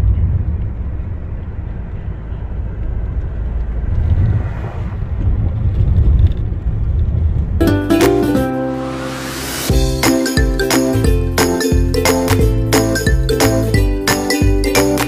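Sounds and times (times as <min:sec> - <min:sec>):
car road noise rumble: 0:00.0 - 0:07.6.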